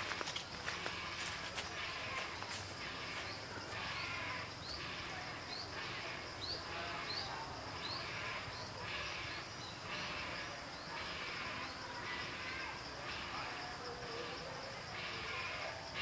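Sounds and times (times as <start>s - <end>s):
chorus of wild animal calls: 0.9s - 16.0s.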